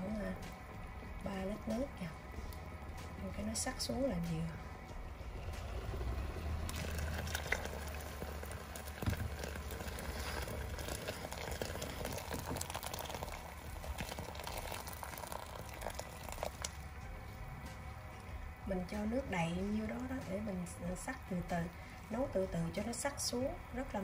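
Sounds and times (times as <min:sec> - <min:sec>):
low steady hum: 0:00.0 - 0:24.0
broth bubbling: 0:04.7 - 0:23.8
hot water pouring into a pot: 0:05.3 - 0:17.0.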